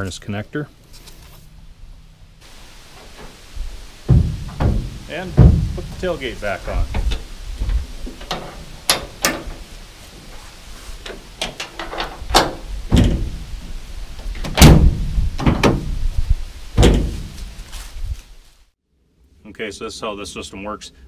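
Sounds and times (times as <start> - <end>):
metal tailgate clicks and knocks: 4.1 - 6.0, 8.1 - 9.6, 11.0 - 13.4, 14.2 - 15.9, 16.8 - 17.3
tailgate latching thump: 4.1 - 6.0, 11.1 - 13.4, 14.4 - 15.9, 16.8 - 17.4.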